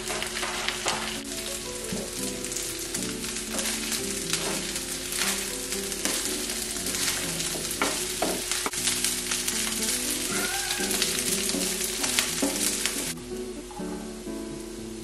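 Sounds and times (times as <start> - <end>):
rice sizzling in frying pan: 0.0 - 13.6
spatula scraping pan: 3.3 - 8.8.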